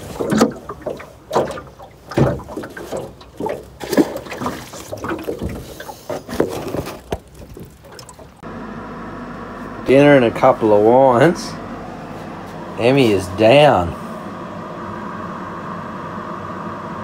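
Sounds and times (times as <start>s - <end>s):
handling knocks and rustles: 0.0s - 8.4s
water splashing: 0.0s - 8.4s.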